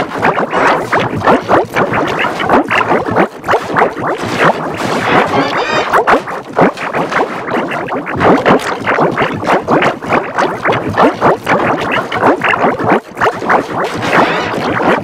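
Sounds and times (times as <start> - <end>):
garbled warbling reversed soundtrack: 4.0 - 6.2, 14.0 - 14.8.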